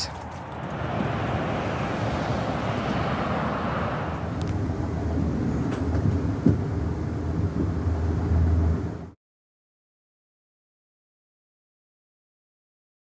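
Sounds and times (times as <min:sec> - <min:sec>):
train rumbling on rails: 0:00.0 - 0:09.2.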